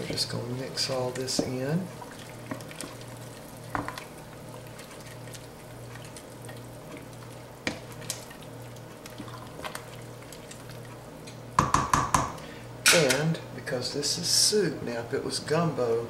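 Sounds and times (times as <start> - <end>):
wooden spoon stirring thick soup: 0.0 - 12.3
steady low hum: 0.0 - 16.0
spoon knocking against pot: 11.6 - 12.4.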